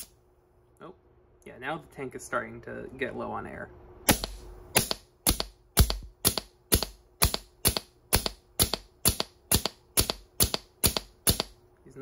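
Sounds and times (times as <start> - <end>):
air blaster firing pops: 4.1 - 11.6.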